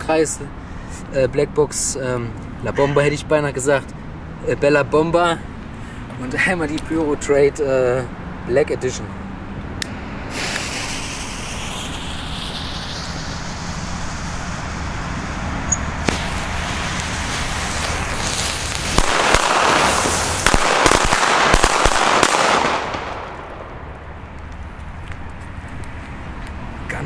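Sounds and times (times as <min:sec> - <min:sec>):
burning fuses hissing: 0:09.8 - 0:24.1
firecrackers banging: 0:09.8 - 0:25.2
single crack: 0:16.0 - 0:17.1.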